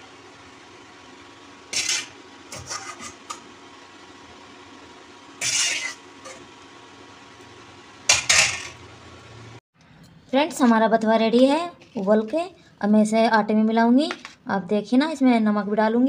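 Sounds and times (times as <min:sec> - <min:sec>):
steady background hum: 0:00.0 - 0:16.0
metal skimmer scraping a pot: 0:01.7 - 0:03.4, 0:05.4 - 0:06.4.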